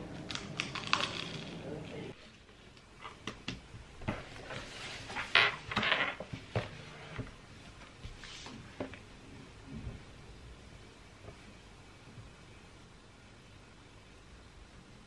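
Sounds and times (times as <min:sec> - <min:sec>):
book rustling: 0:04.0 - 0:06.8.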